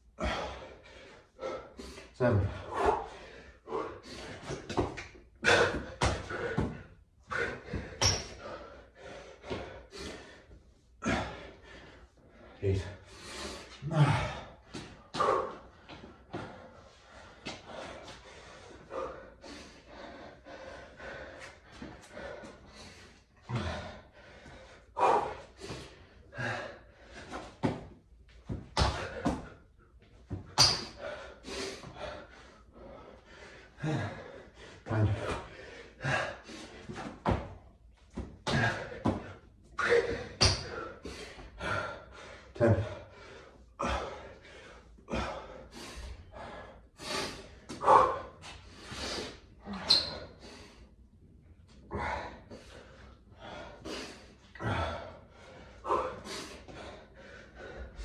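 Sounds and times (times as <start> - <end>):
man exhaling and gasping: 0.0 - 37.6, 38.2 - 51.1, 51.7 - 58.0
hands and feet thudding on tiles: 4.4 - 6.9, 27.3 - 29.6, 30.3 - 31.0, 36.8 - 40.8.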